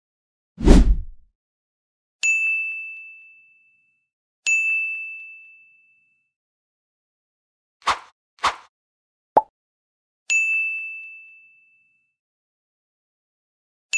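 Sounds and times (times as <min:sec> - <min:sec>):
bright bell-like dings: 0:10.3 - 0:12.1.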